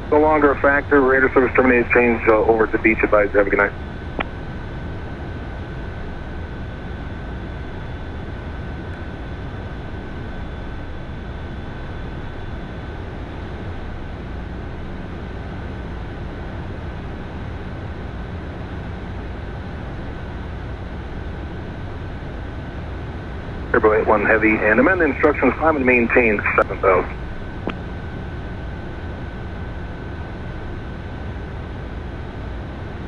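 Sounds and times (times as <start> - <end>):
jet cabin airflow and engine noise: 0.0 - 33.0
thin high whine: 23.5 - 28.9.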